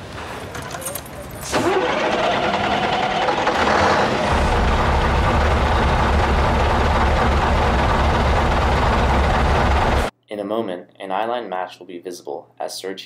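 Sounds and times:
truck engine running: 0:01.0 - 0:10.1.

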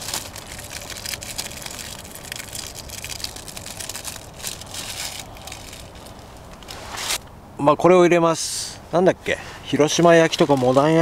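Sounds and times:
plastic film crinkling: 0:00.0 - 0:07.2, 0:09.8 - 0:11.0.

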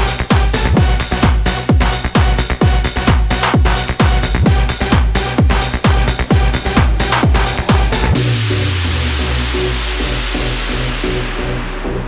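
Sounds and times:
kick drum: 0:00.0 - 0:08.9
electronic dance music: 0:00.0 - 0:11.2.

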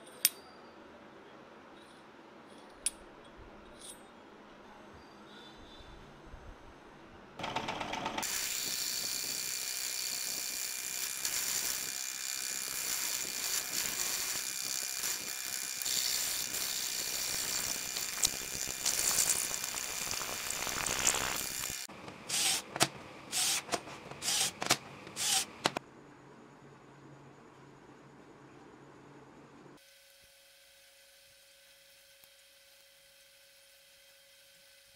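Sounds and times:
drill boring through steel: 0:07.5 - 0:22.7, 0:23.3 - 0:25.8.

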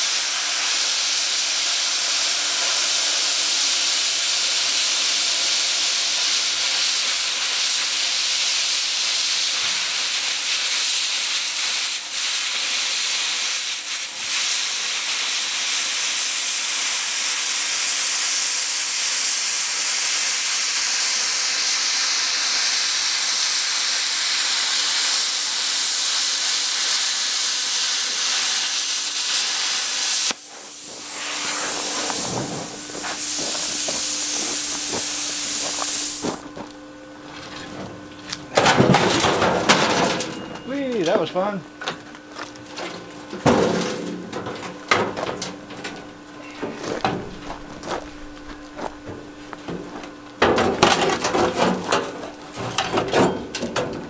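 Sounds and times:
plasma cutter hissing: 0:00.0 - 0:36.5.

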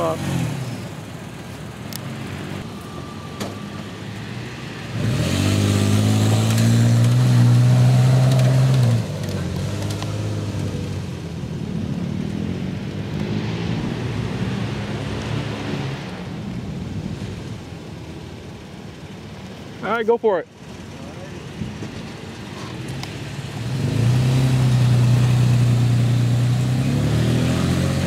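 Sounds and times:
quieter vehicle engine running: 0:00.0 - 0:28.0
engine revving up slope: 0:04.7 - 0:11.1, 0:22.9 - 0:28.0.

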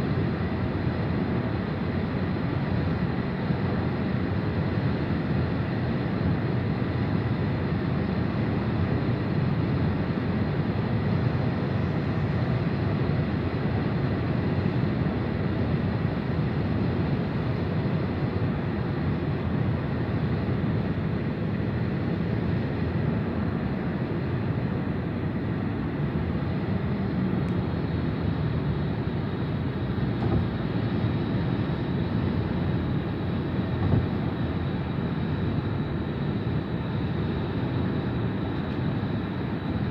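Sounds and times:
car road noise: 0:29.8 - 0:35.8.

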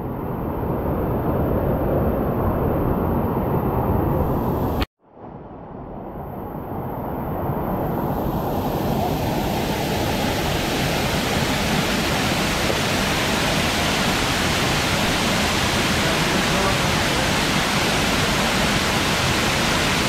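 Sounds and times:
waterfall rushing over rocks: 0:08.9 - 0:20.0.

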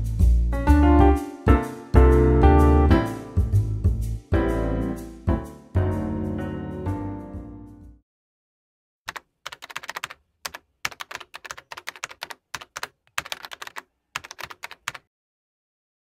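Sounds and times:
piano notes: 0:00.6 - 0:07.9
keyboard key clicks: 0:09.1 - 0:15.0.

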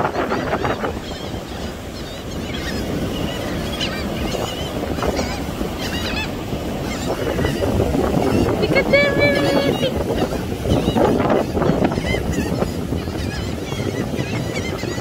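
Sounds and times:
gulls squawking: 0:00.0 - 0:15.0
surf washing: 0:00.0 - 0:15.0
wind: 0:00.0 - 0:15.0.

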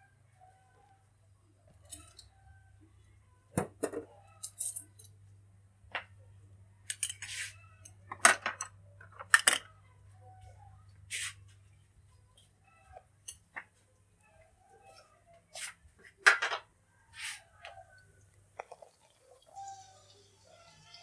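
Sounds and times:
brief scrapes: 0:11.1 - 0:11.4, 0:17.2 - 0:17.4.

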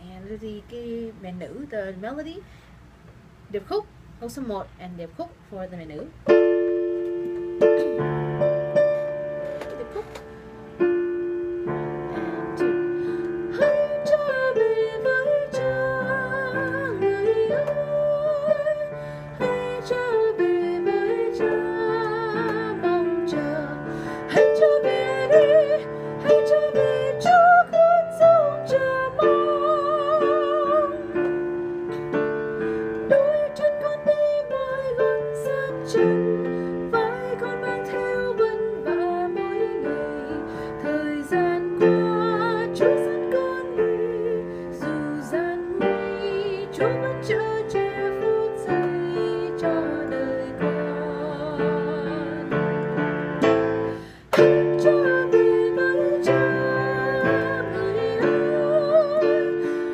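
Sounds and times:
woman singing a hymn: 0:00.0 - 0:02.4, 0:11.7 - 0:31.8, 0:32.6 - 0:59.9
keyboard block chords: 0:06.2 - 0:40.8.

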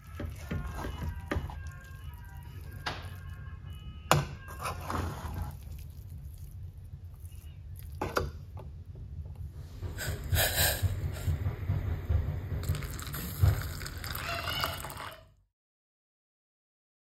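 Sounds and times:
steady low rumble: 0:08.7 - 0:14.0
hot water splashing into a bowl: 0:12.6 - 0:15.2.

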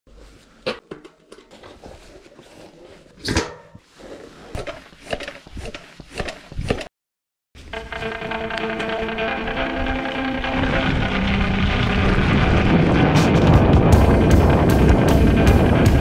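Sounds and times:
background music: 0:07.8 - 0:16.0.

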